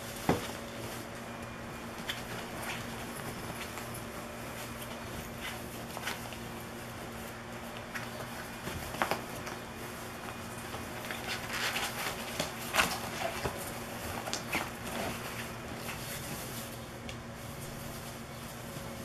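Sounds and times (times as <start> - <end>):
nylon fabric rustling: 0.0 - 19.0
claws scratching and tapping: 7.6 - 17.2.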